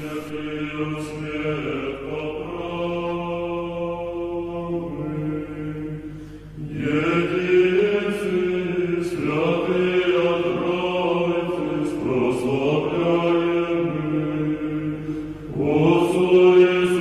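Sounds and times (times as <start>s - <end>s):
liturgical chant: 0.0s - 17.0s.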